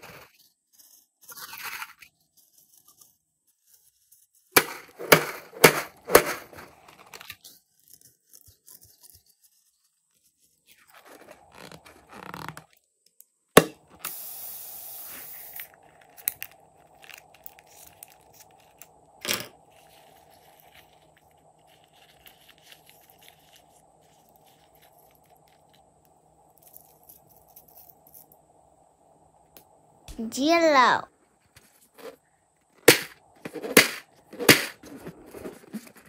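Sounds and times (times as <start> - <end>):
air hissing: 14.0 - 15.7
faint crinkling: 15.1 - 28.6, 31.1 - 36.0.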